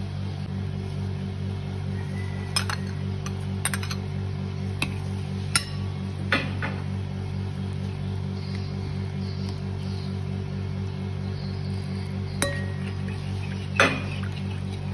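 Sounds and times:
metal spoon clinking on ceramic bowl: 12.4s - 13.0s.

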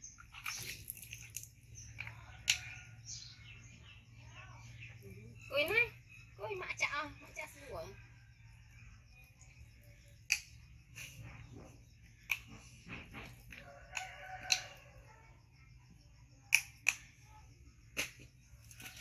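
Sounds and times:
plastic bottle clicks and taps: 10.3s - 10.5s.

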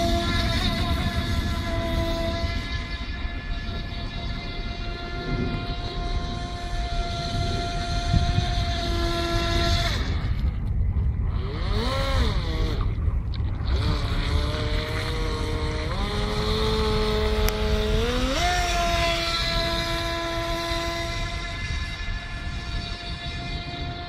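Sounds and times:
electric boat motor whining: 0.0s - 24.0s
low rumble: 0.0s - 24.0s.

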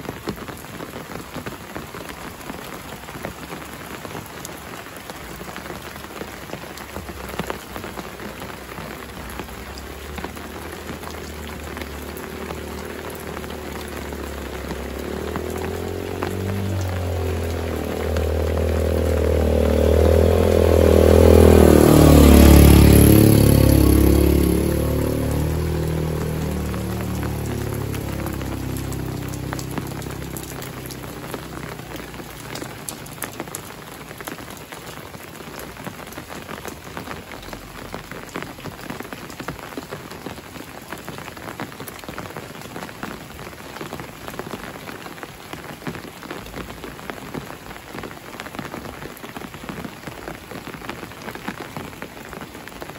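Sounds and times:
steady rain: 0.0s - 52.9s
water drips: 0.2s - 47.6s
motorcycle passing by: 7.2s - 39.4s.

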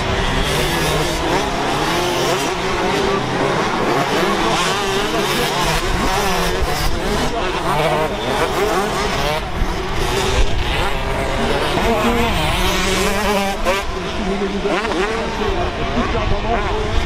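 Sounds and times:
motocross bike engines revving: 0.0s - 17.0s.

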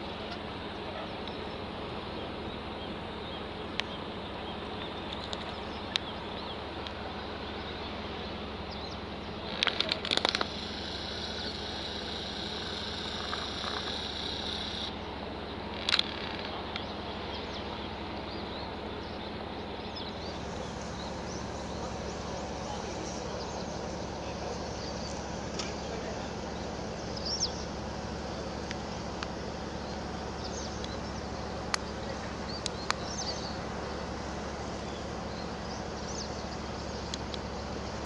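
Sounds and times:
high steady buzz: 0.0s - 38.0s
rattle of sharp high clicks: 9.4s - 15.0s, 15.7s - 16.9s.

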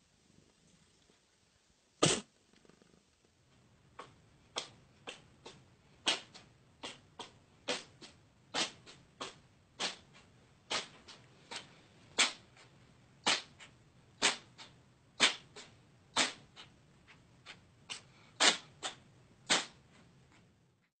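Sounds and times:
cat sneezing: 2.0s - 2.3s, 4.0s - 16.7s, 17.4s - 19.8s.

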